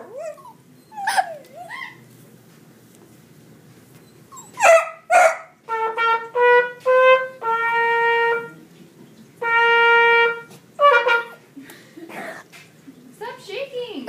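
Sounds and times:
trumpet playing: 0:04.6 - 0:08.7, 0:09.4 - 0:11.6.

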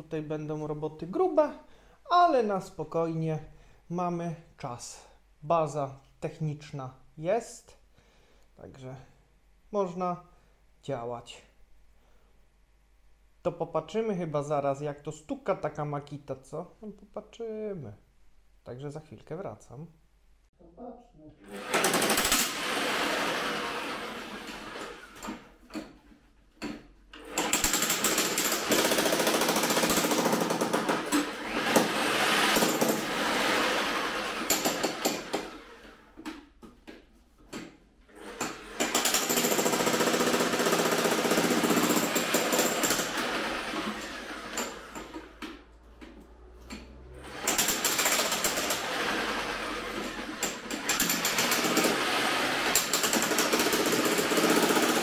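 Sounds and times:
demolition hammer chiselling rock: 0:27.4 - 0:35.5, 0:38.4 - 0:45.0, 0:47.3 - 0:55.0.

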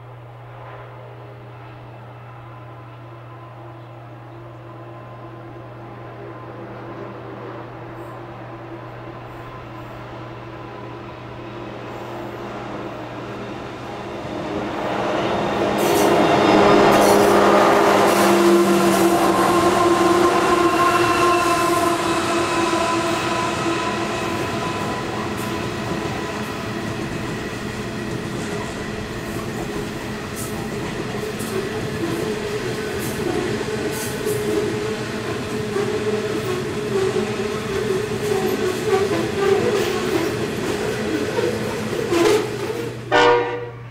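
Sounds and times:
diesel locomotives droning: 0:00.0 - 0:43.9
train wheels clacking over rails: 0:14.1 - 0:43.1.

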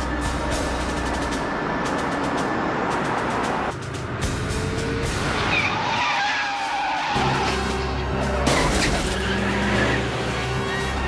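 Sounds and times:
tyres squealing: 0:05.4 - 0:11.0.

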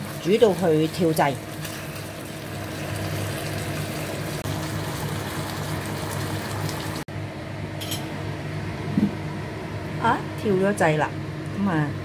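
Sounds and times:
sauce sizzling and bubbling: 0:00.0 - 0:07.1.

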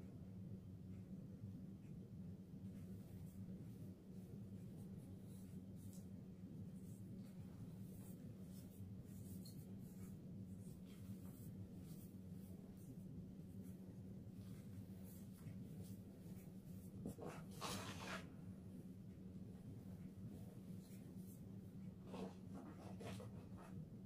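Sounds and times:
low steady hum: 0:00.0 - 0:24.0.

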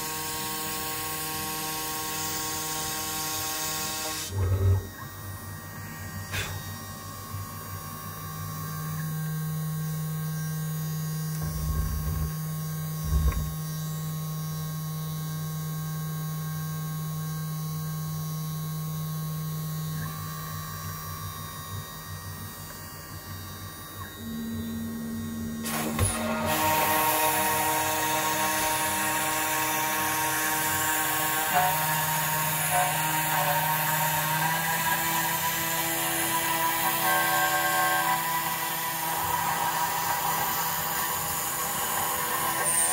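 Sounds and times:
high-speed spindle running: 0:00.0 - 0:08.5, 0:11.3 - 0:13.6, 0:24.2 - 0:42.9
stepper motors whining: 0:04.1 - 0:05.5, 0:11.3 - 0:13.6
low thumps: 0:11.4 - 0:12.3, 0:13.0 - 0:13.6.

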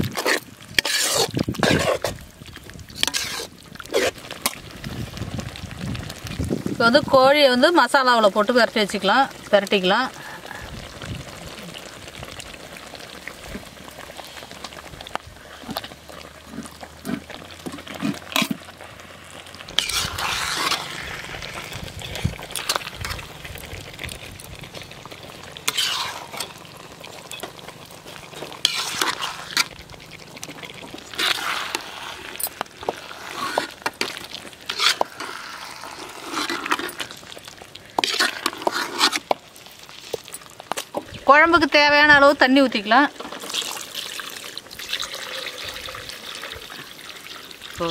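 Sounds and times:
ladle wet scrape: 0:00.0 - 0:04.8, 0:15.4 - 0:18.8, 0:19.6 - 0:41.0
masala sizzling in a wok: 0:00.0 - 0:47.9.

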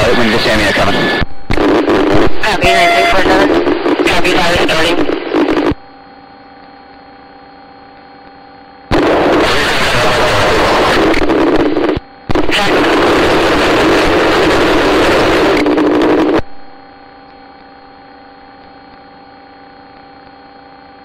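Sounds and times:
radio rushing noise: 0:00.0 - 0:06.9, 0:08.9 - 0:16.9
faint steady hum: 0:00.0 - 0:21.0.

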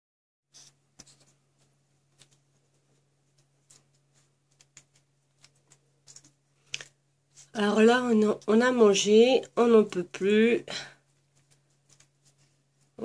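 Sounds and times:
soft clicks and rustles: 0:00.6 - 0:08.7, 0:11.0 - 0:13.0.

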